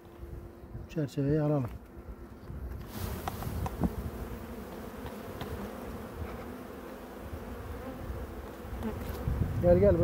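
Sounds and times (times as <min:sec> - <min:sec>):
bees buzzing: 0:00.0 - 0:10.0.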